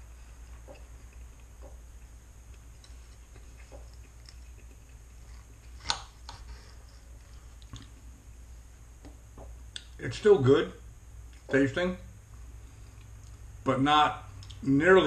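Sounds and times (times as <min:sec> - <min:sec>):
faint chewing: 0:00.0 - 0:08.1, 0:12.4 - 0:13.5.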